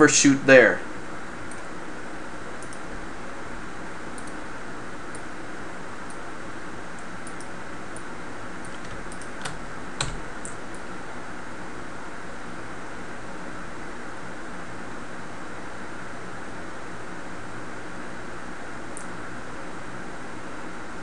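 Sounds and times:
mouse clicks: 0:02.6 - 0:02.9, 0:04.1 - 0:04.4
keyboard keys clicking: 0:07.3 - 0:10.6.

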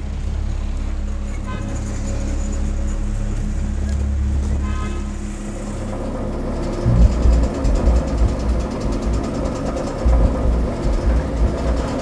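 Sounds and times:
vehicle hum: 0:00.0 - 0:12.0
background music: 0:06.4 - 0:12.0.

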